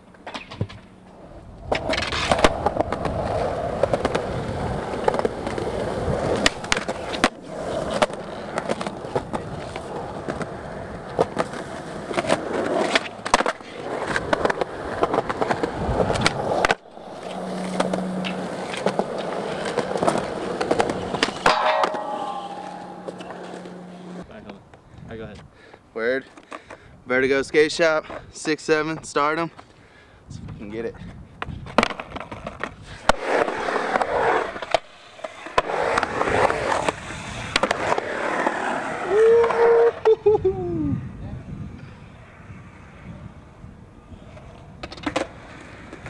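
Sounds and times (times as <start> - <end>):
skateboard clacking on ground: 0.0 - 24.6, 31.4 - 40.1, 44.2 - 46.0
skateboard wheels rolling on concrete: 0.0 - 46.0.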